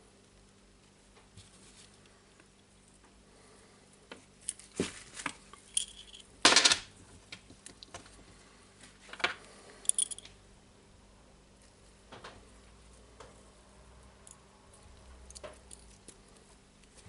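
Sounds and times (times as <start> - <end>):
steel parts clicking and clinking: 5.6 - 6.3, 9.8 - 10.3.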